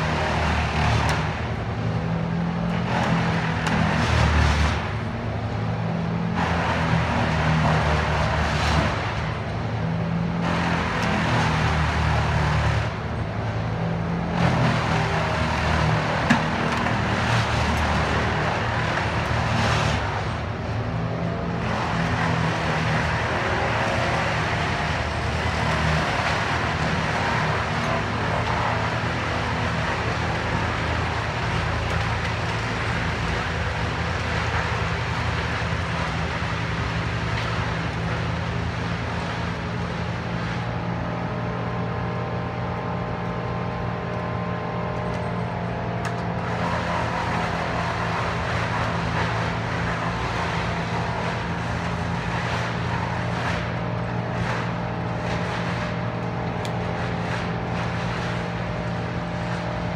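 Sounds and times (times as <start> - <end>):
crane engine running: 0.0 - 59.9.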